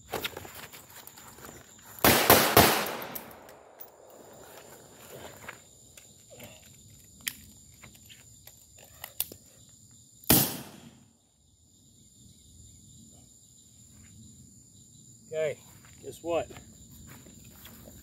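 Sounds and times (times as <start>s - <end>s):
gunshot pop: 10.3s - 10.9s.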